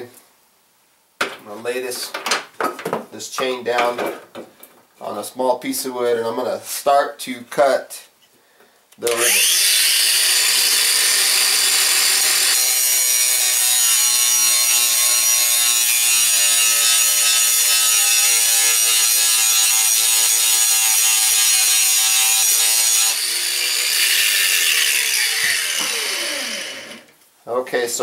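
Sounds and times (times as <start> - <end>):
angle grinder grinding steel: 9.1 - 27.1.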